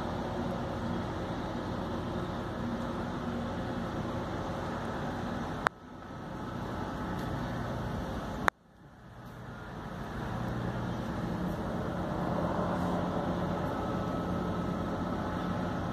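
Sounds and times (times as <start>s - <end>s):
vehicle engine and road noise: 0.0s - 15.9s.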